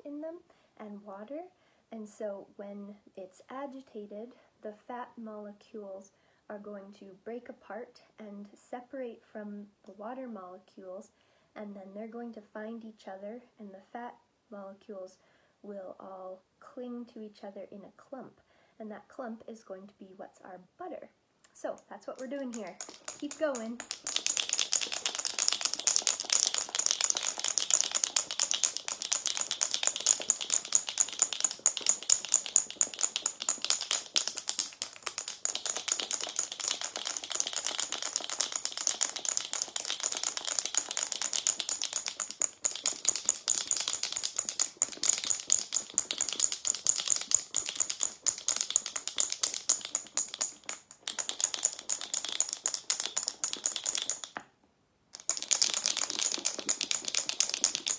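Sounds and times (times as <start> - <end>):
marbles rattling in shaken jar: 22.0 - 54.4, 55.1 - 57.9.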